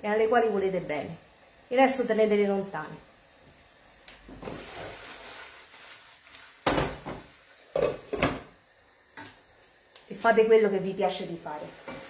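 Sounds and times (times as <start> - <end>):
cookware shuffling: 4.4 - 8.5
pans knocking on stove grate: 6.6 - 8.5.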